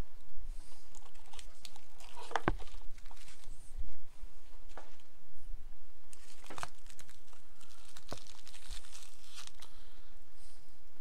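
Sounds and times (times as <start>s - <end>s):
foil wrappers crinkling: 0.9s - 3.6s, 6.1s - 9.8s.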